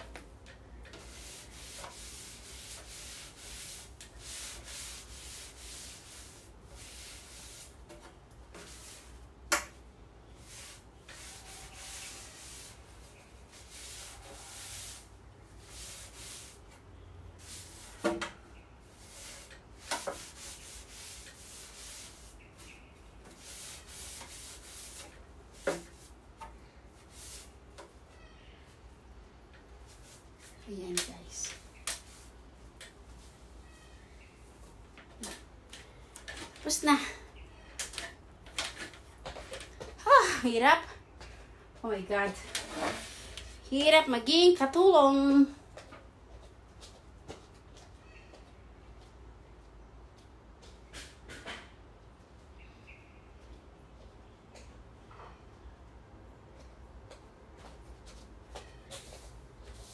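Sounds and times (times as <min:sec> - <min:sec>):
cloth wiping fan blades: 0:00.8 - 0:09.3, 0:10.3 - 0:16.8, 0:17.4 - 0:18.1, 0:18.8 - 0:27.9.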